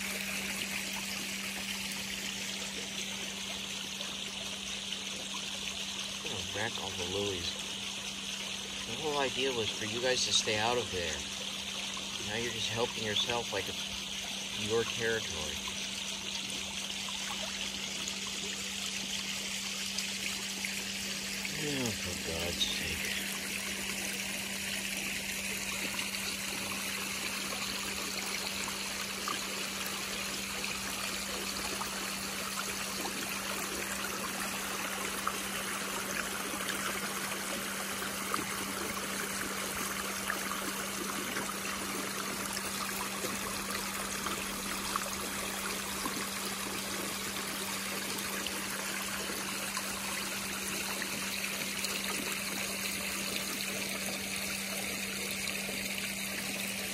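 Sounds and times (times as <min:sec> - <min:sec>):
small waterfall splashing into pond: 0:00.0 - 0:56.9.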